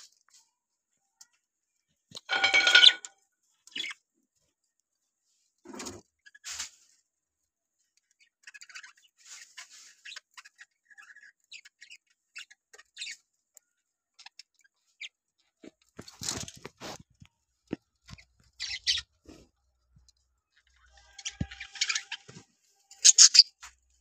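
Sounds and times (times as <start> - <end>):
budgerigars chirping: 23.0 - 23.6.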